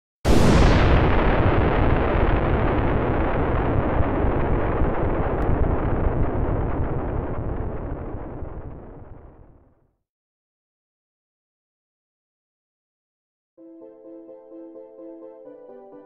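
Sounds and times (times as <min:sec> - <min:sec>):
deep rumbling boom: 0:00.3 - 0:09.7.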